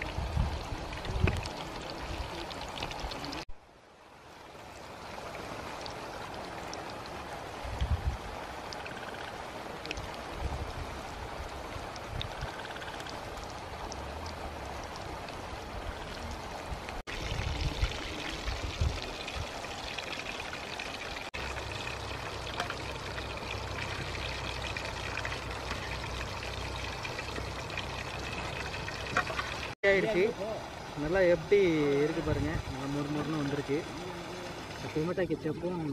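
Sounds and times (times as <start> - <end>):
chicken deep-frying in oil: 17.1 - 30.3.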